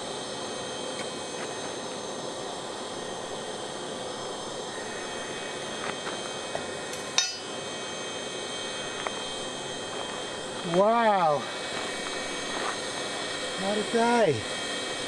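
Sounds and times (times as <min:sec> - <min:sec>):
metallic clank with ringing: 0:07.2 - 0:07.5.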